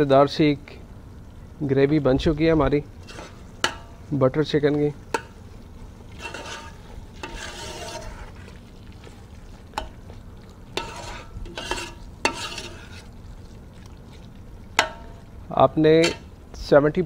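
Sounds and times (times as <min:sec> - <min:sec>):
metal spoon stirring thick sauce: 0:03.0 - 0:04.0, 0:05.0 - 0:15.3.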